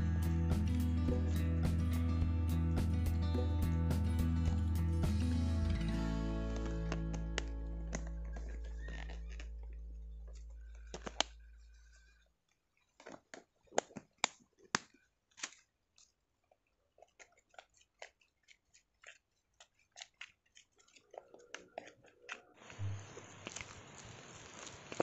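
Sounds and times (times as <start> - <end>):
background music: 0.0 - 8.6.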